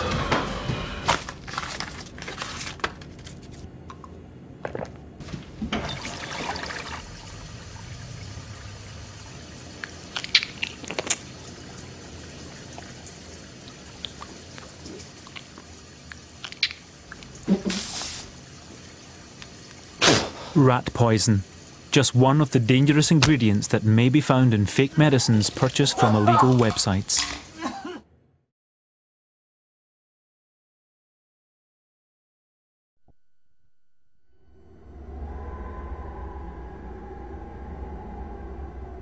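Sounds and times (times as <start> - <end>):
water pouring: 5.3 - 20.0.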